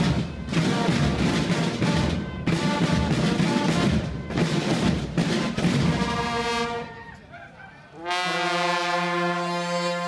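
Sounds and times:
band drumming marching beat: 0.0s - 6.8s.

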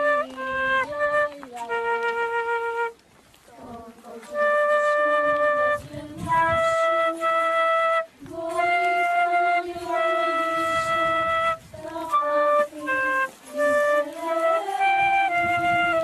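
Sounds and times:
flute melody: 0.0s - 3.0s, 4.1s - 16.0s.

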